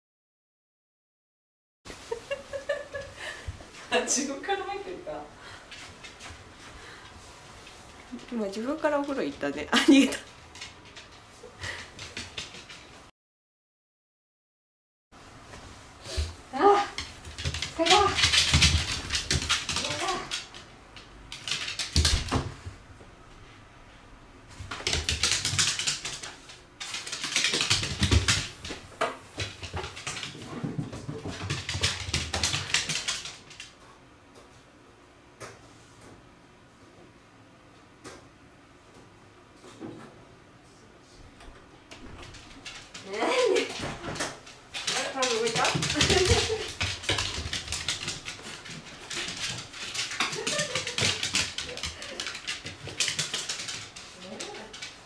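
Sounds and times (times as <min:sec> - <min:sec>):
dog claws clicking on wooden floor: 0:17.0 - 0:22.6, 0:24.7 - 0:28.8, 0:31.1 - 0:33.7, 0:42.2 - 0:55.0.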